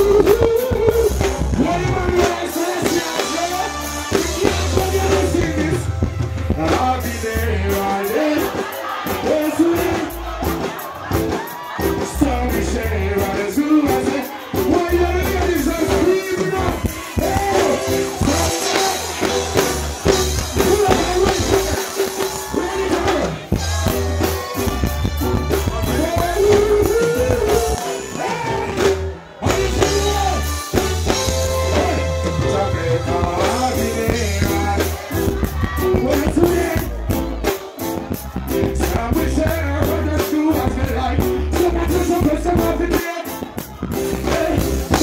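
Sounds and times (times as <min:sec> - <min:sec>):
person singing: 0:00.0 - 0:45.0
reggae music on sound system: 0:00.0 - 0:45.0.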